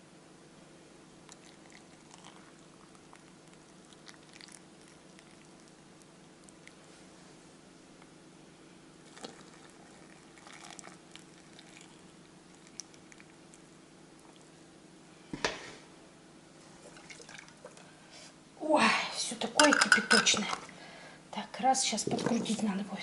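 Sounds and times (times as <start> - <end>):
steady low hum: 0.0 - 23.0
hot water pouring into glass jar: 1.3 - 5.7, 9.0 - 13.4, 16.9 - 17.7.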